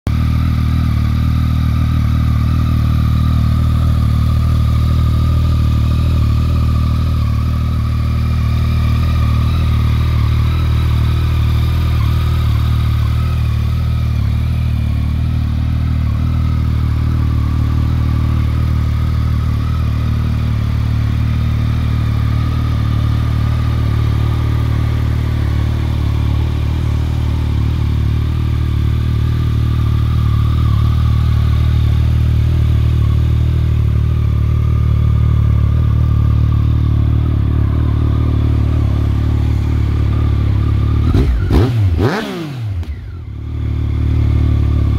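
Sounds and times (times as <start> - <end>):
engine revving: 0.1 - 44.9
motorcycle engine idling: 0.1 - 44.9.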